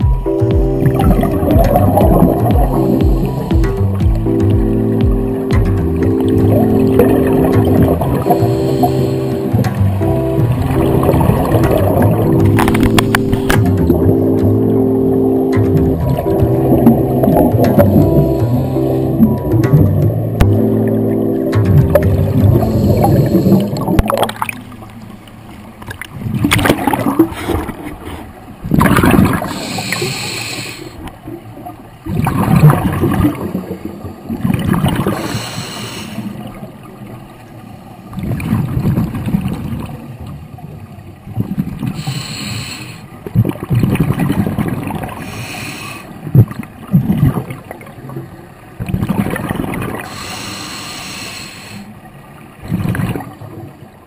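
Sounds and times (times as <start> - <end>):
gurgling exhaled bubbles: 0.7 - 24.8, 26.1 - 30.3, 30.9 - 36.7, 38.1 - 40.6, 43.2 - 45.6, 46.2 - 48.2, 48.8 - 51.2, 52.6 - 53.7
regulator hissing inhale: 8.2 - 9.5, 18.1 - 19.2, 22.6 - 23.9, 29.4 - 31.1, 35.1 - 36.4, 42.0 - 43.2, 45.2 - 46.2, 50.0 - 52.0.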